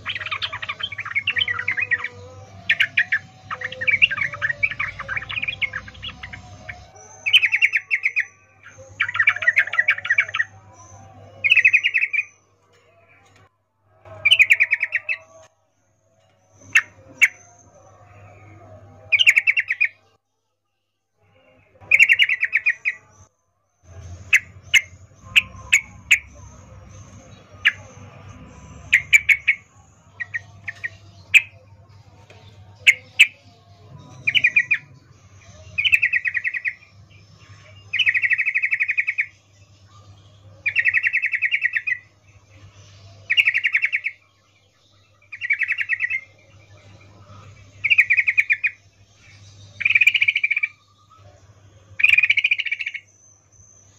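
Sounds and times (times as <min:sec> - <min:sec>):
bird buzzy chattering: 0:24.3 - 0:31.6.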